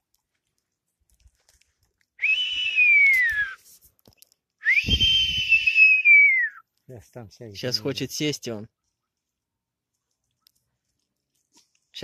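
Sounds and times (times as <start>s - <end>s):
person whistling long calls: 2.2s - 3.7s, 4.6s - 6.6s.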